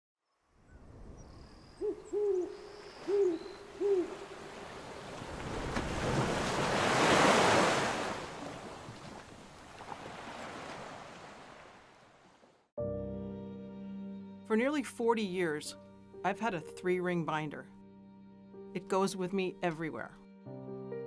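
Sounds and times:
owl hooting: 0:01.8 - 0:04.4
ocean wave surging: 0:03.7 - 0:09.0, 0:09.8 - 0:12.0.

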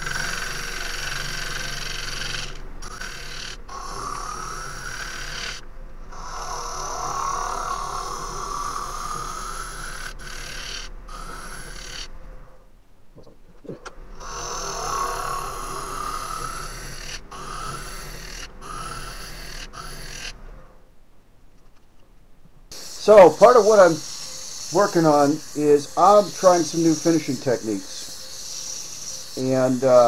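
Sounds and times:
lathe tool rasping wood: 0:22.7 - 0:30.0.

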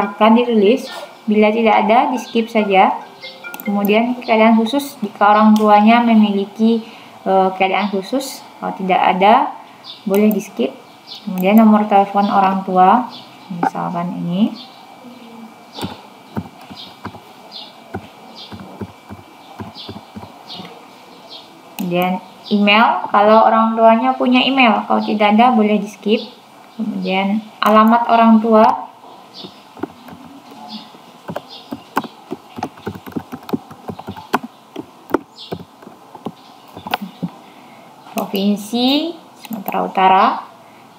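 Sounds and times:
keyboard keys clicking: 0:15.8 - 0:17.2, 0:18.0 - 0:20.3, 0:29.4 - 0:30.6, 0:31.3 - 0:37.3.

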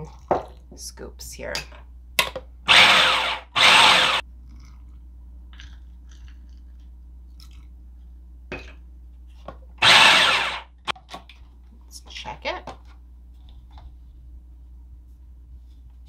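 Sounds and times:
food processor pulsing: 0:02.7 - 0:04.2, 0:09.8 - 0:10.9.

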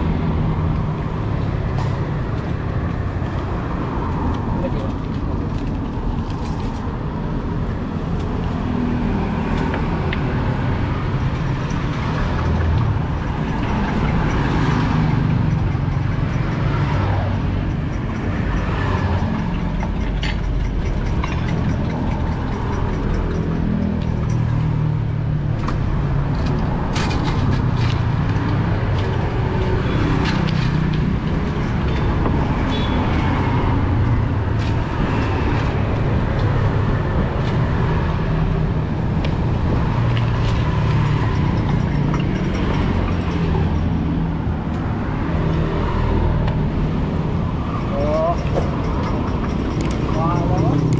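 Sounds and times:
road traffic rumble: 0:00.0 - 0:50.9
vehicles passing: 0:00.0 - 0:50.9.

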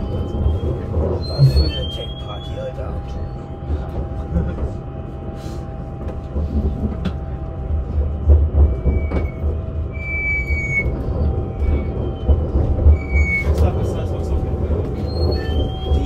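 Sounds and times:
train wheels squealing: 0:00.0 - 0:04.1, 0:08.6 - 0:16.0
train rumbling over track: 0:00.0 - 0:16.0.

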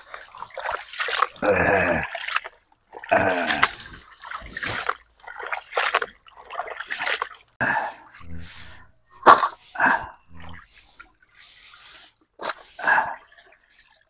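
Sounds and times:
hands sloshing fish in water: 0:00.0 - 0:01.4, 0:02.0 - 0:07.9
splashes and drips: 0:00.0 - 0:08.7, 0:10.3 - 0:14.0.

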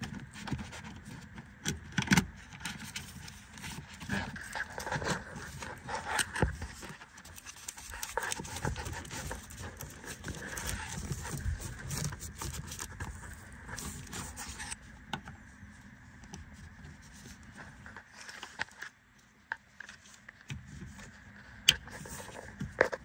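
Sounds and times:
plastic sheet rustling: 0:02.7 - 0:14.8.

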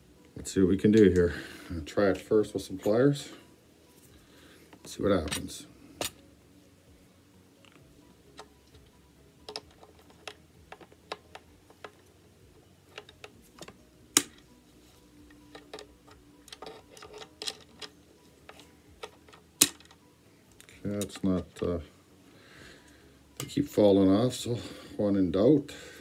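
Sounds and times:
pliers clicking on metal: 0:15.5 - 0:17.9.

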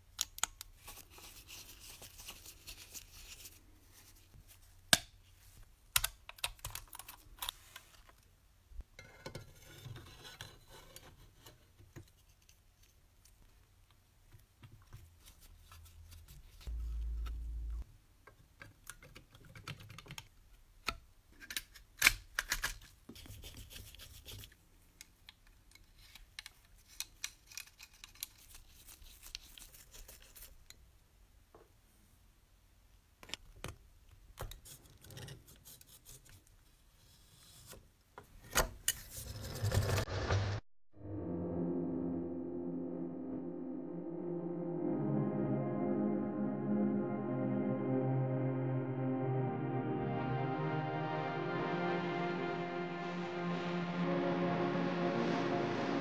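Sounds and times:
brief low rumble: 0:16.7 - 0:17.8.

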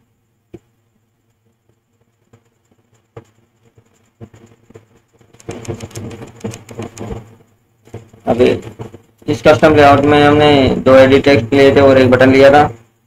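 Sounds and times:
keyboard key presses: 0:05.3 - 0:07.3.

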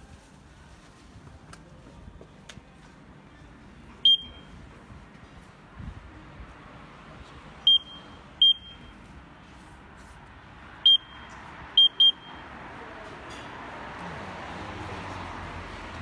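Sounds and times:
keypad beeps: 0:04.0 - 0:04.5, 0:07.7 - 0:08.9, 0:10.9 - 0:12.4.

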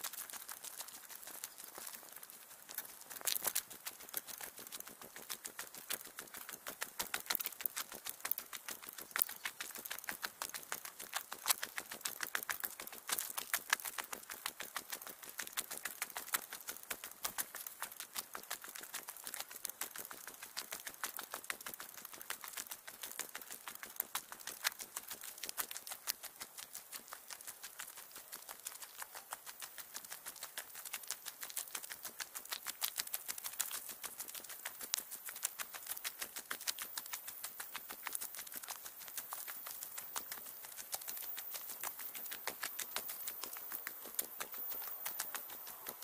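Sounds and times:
sped-up footsteps on trail: 0:00.0 - 0:46.0.

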